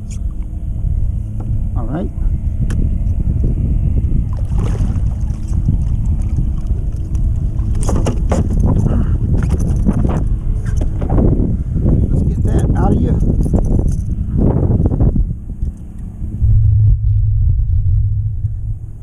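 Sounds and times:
wind buffeting microphone: 0:00.0 - 0:19.0
water splashing: 0:04.3 - 0:08.4.

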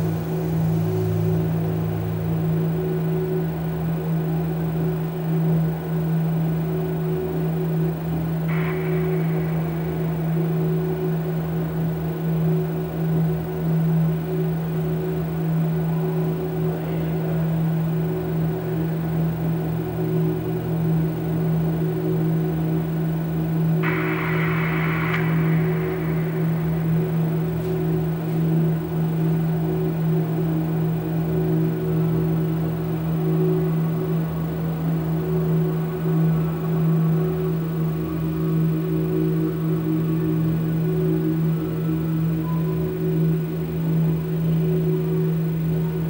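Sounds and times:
electronic drone: 0:00.0 - 0:46.0
brief hiss: 0:23.8 - 0:28.6.

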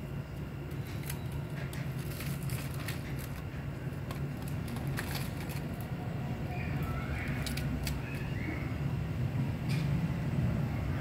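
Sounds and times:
steady low hum: 0:00.0 - 0:11.0
cats crunching dry kibble: 0:00.3 - 0:06.2, 0:06.8 - 0:08.3.

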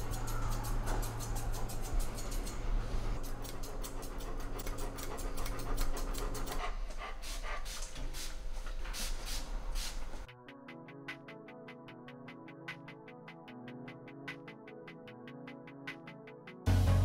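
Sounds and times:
dog panting: 0:03.2 - 0:08.4.

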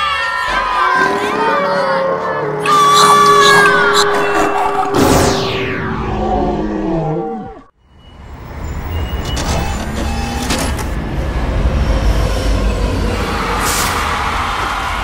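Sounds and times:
wavering pitched wails: 0:00.0 - 0:07.7
falling whistle glide: 0:02.6 - 0:07.7.

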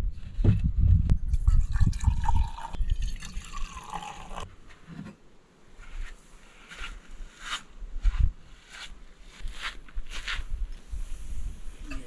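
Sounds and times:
coffee pouring into a mug: 0:01.4 - 0:04.4.

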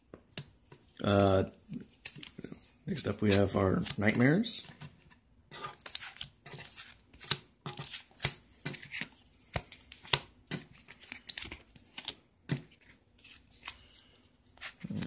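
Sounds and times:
plastic sleeves rustling: 0:00.7 - 0:15.0
cards slapping on wooden table: 0:05.6 - 0:13.8.

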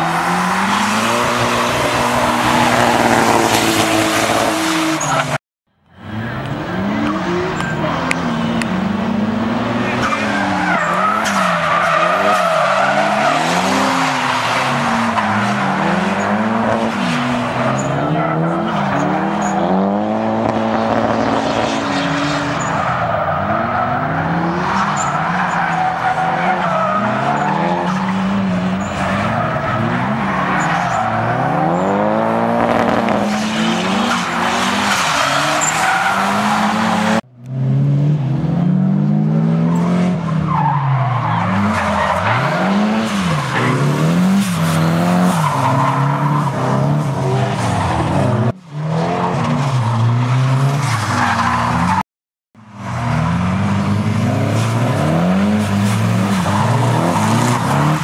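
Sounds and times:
car engines revving: 0:00.0 - 0:52.0, 0:52.6 - 0:58.0
tyre squeal: 0:33.2 - 0:37.1.

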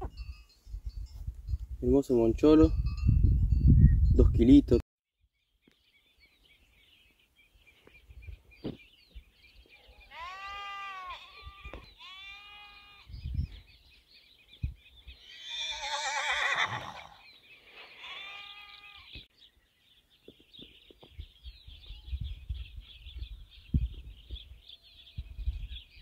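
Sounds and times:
small birds twittering: 0:05.3 - 0:26.0
livestock bleating: 0:10.0 - 0:13.1, 0:15.2 - 0:17.0, 0:17.8 - 0:19.2.

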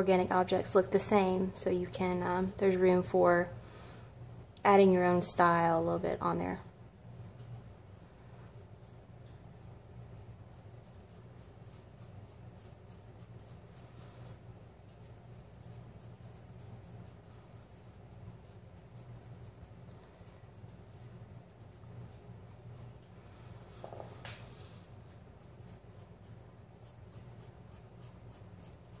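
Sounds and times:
faint low hum: 0:00.0 - 0:29.0
pencil scratching on paper: 0:10.5 - 0:19.8, 0:25.0 - 0:29.0.

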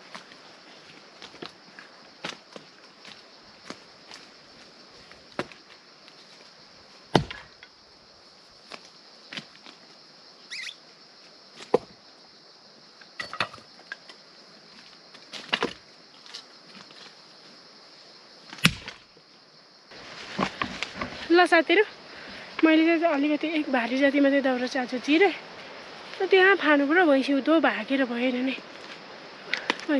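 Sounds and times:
axe chopping firewood: 0:07.1 - 0:07.6, 0:18.5 - 0:19.0.

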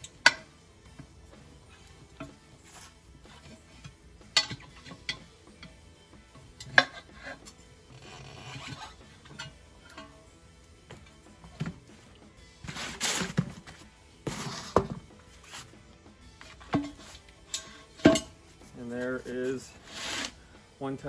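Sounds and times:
tire scraping on rim: 0:12.7 - 0:14.8.

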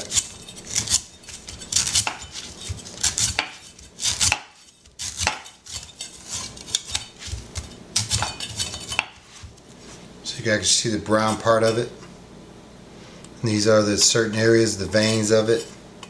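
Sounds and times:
knife scraping coconut husk: 0:00.0 - 0:09.6, 0:15.0 - 0:15.7.

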